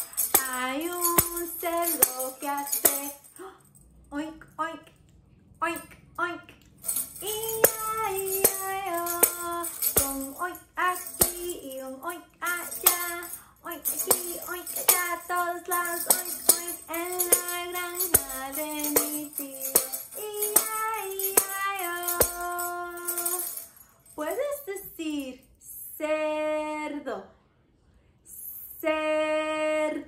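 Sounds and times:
woman singing: 0.0 - 3.5, 5.6 - 27.2, 28.3 - 30.0
tambourine struck and shaken: 0.0 - 3.7, 6.8 - 24.4.

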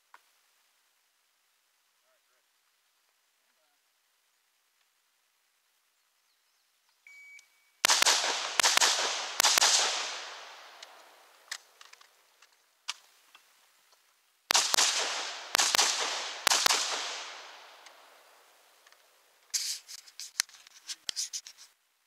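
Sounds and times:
rapid rifle fire: 7.8 - 11.6, 14.5 - 18.5.

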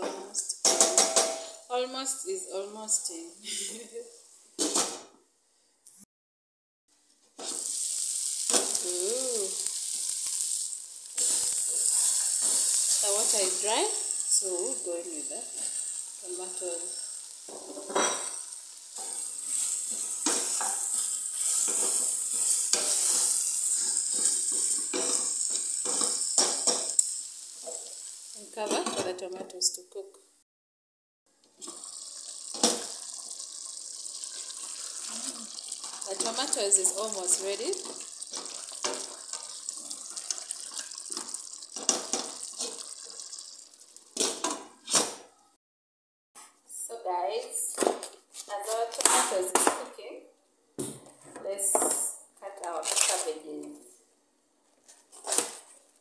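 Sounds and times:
meat sizzling in a pot: 7.4 - 29.4, 31.6 - 44.9.

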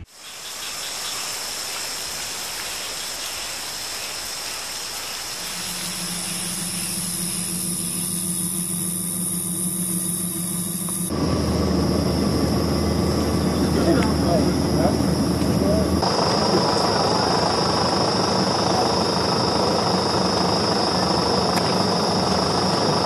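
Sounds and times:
steady hissing noise: 0.0 - 23.0
high steady whine: 5.3 - 23.0
low steady hum: 5.4 - 23.0.

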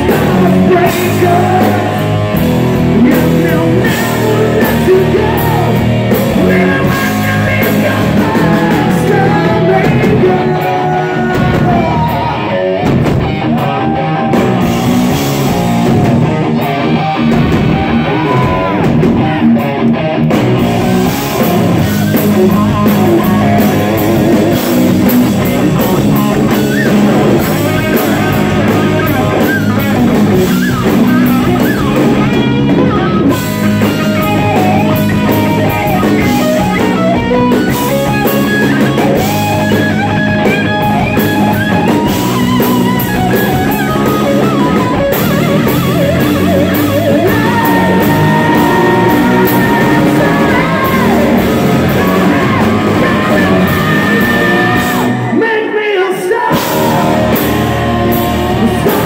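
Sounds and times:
pounding drum kit: 0.0 - 55.5, 56.1 - 59.0
bass guitar: 0.0 - 59.0
distorted electric guitar lead: 0.0 - 59.0.

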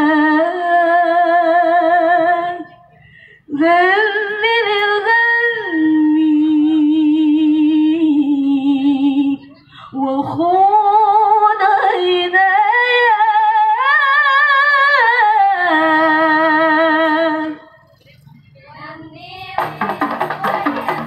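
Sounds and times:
woman singing unaccompanied: 0.0 - 2.7, 3.5 - 17.7
frame drums beating: 19.6 - 21.0.

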